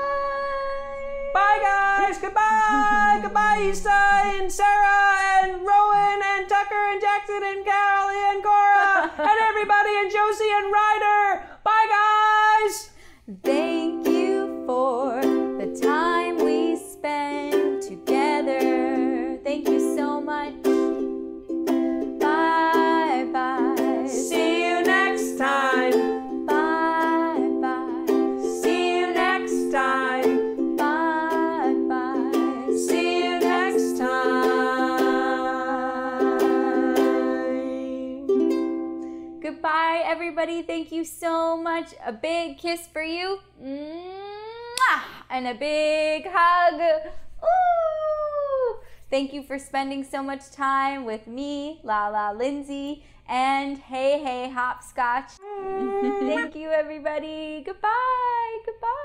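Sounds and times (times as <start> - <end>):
ukulele strumming: 0.0 - 10.1, 13.4 - 39.4, 55.7 - 56.7
woman singing: 0.0 - 21.0, 22.2 - 38.5, 50.6 - 59.0.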